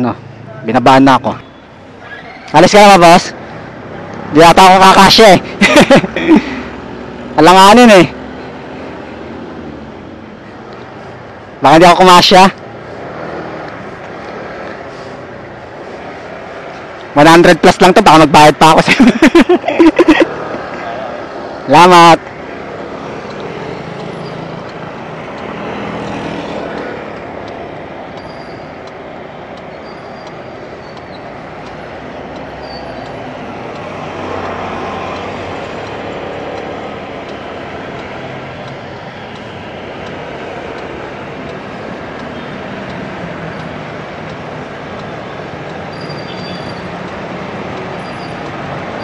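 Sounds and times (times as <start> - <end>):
bus running close by: 19.5 - 49.0.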